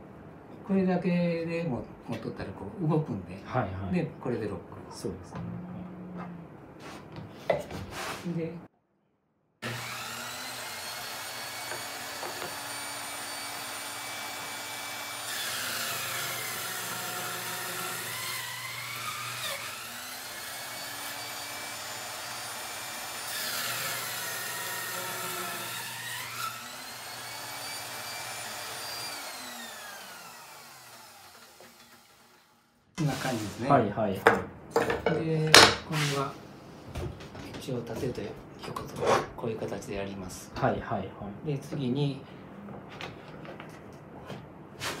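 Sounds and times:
saw motor winding down: 9.6 - 32.6
circular saw whining: 9.6 - 32.8
saw cutting through wood: 9.6 - 33.5.

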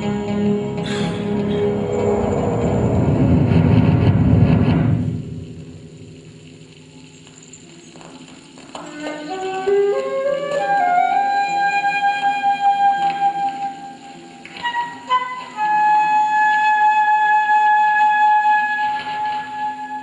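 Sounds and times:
low electronic drone: 0.2 - 7.1
flute playing: 8.9 - 20.0.

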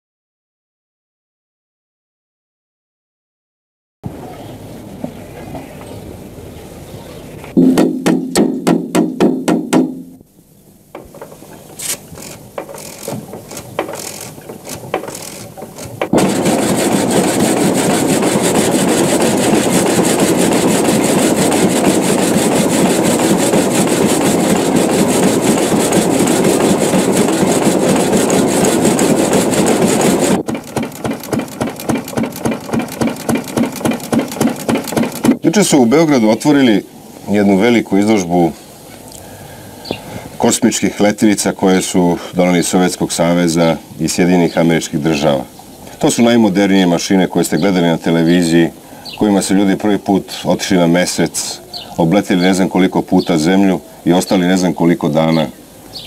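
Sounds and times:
machine rhythmic pounding: 7.6 - 10.2, 12.2 - 35.4
loud steady scraping: 11.0 - 35.4.

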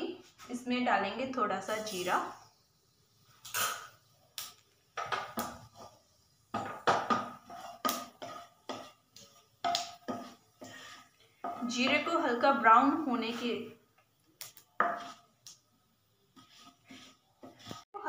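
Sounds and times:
seeds frying in oil: 0.6 - 18.0.

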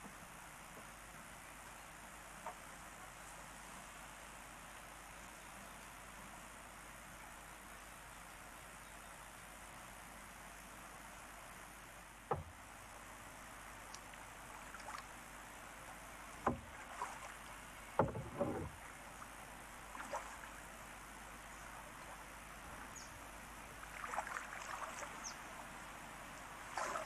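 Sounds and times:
tape hiss: 0.0 - 27.0
paddle splashes and drips: 12.1 - 13.0, 13.8 - 21.0, 23.7 - 25.4, 26.4 - 27.0
paddle knocking on kayak: 12.3 - 12.6, 16.4 - 17.1, 18.0 - 18.8.

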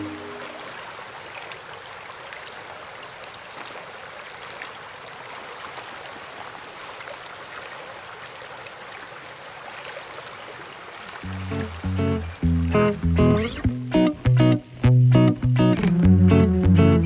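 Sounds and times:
creek water flowing over stones: 0.0 - 13.4.

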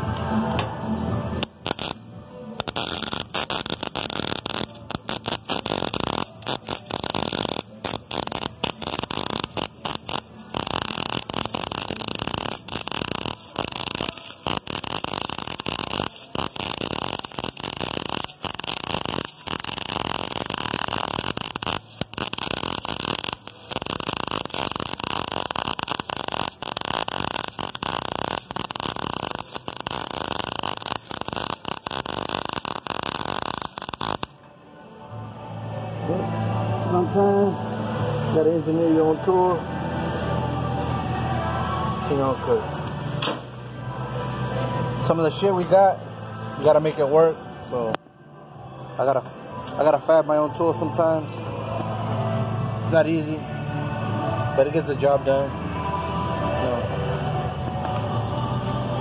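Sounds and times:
welder arc crackling and buzzing: 1.4 - 2.0, 2.6 - 34.4.

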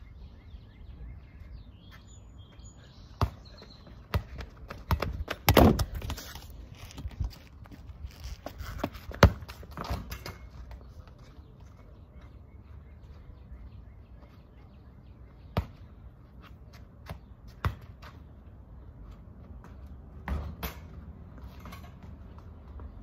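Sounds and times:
rubber ball bouncing on asphalt: 3.2 - 6.4, 8.4 - 10.0.

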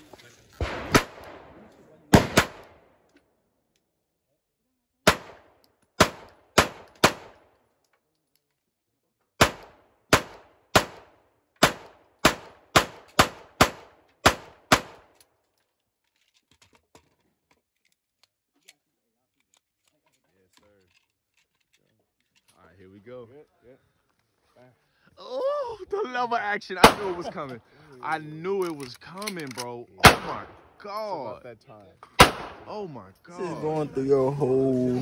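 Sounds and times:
pistol shots: 0.6 - 3.0, 5.0 - 7.6, 9.4 - 15.2, 26.8 - 27.2, 30.0 - 30.8, 32.2 - 32.7.

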